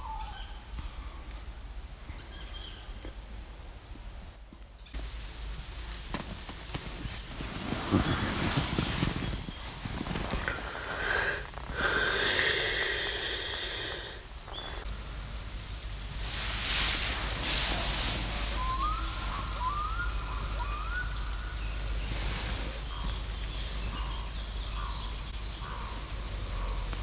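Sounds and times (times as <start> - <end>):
bird rising calls: 0.0 - 1.2, 7.6 - 14.9, 17.7 - 27.0
fabric rustling: 5.0 - 11.8.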